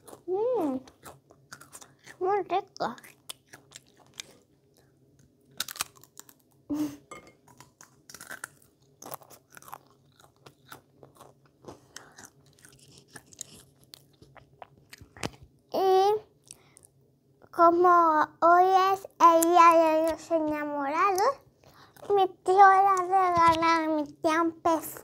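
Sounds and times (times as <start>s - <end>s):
person chewing crisp chips: 0.0s - 6.7s, 7.3s - 15.5s.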